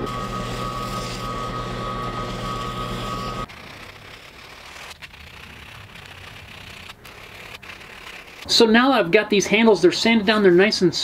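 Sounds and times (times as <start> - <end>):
drill press motor hum: 0.0 - 3.5.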